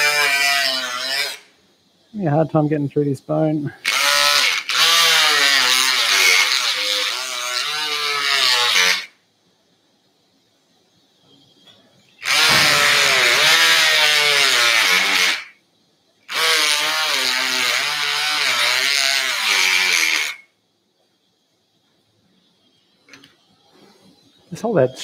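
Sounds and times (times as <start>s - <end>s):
bone saw cutting through bone: 12.3s - 15.4s.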